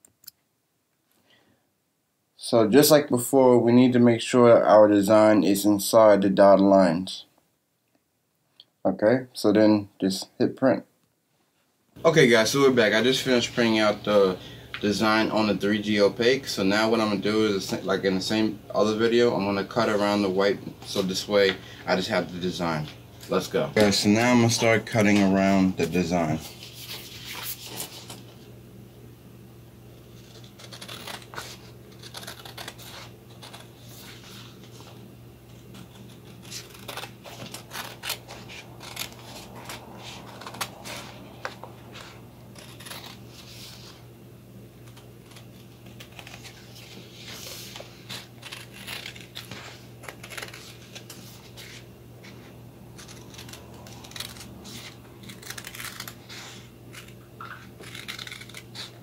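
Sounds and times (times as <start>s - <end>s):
steady low hum: 11.9s - 59.0s
paper rustling: 22.8s - 28.4s, 30.2s - 44.0s, 44.8s - 59.0s
scissors snipping paper: 30.2s - 33.7s, 35.8s - 43.2s, 47.6s - 50.8s, 53.0s - 59.0s.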